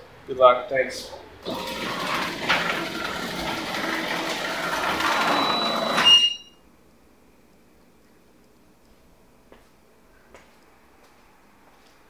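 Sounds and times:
garage door rattling down tracks: 0:01.4 - 0:06.5.

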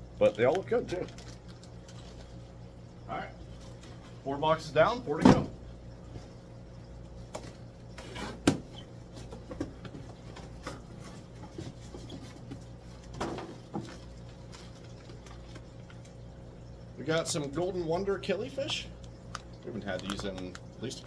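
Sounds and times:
low hum of aquarium pumps: 0:00.0 - 0:21.0.

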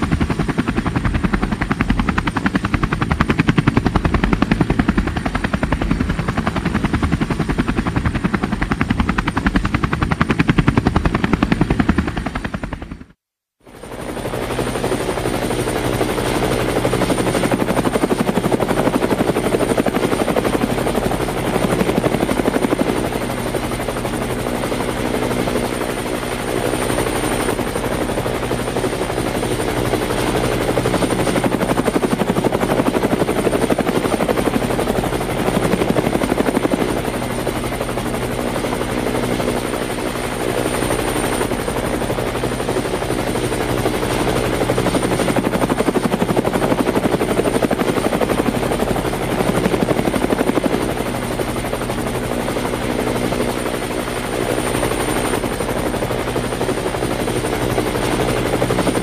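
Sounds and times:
helicopter rotor chopping: 0:00.0 - 0:59.0.

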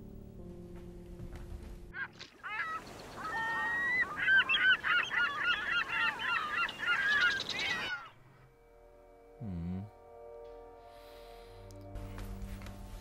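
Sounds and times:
gulls calling: 0:01.9 - 0:08.4.

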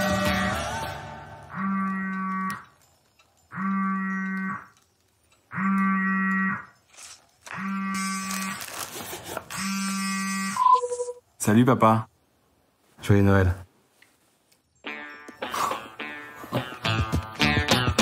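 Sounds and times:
smartphone buzzing: 0:07.5 - 0:08.6, 0:09.5 - 0:11.2.

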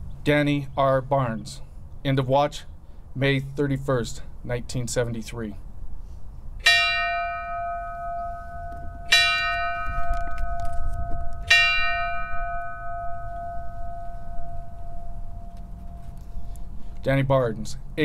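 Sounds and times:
bell tolling: 0:06.6 - 0:16.4.

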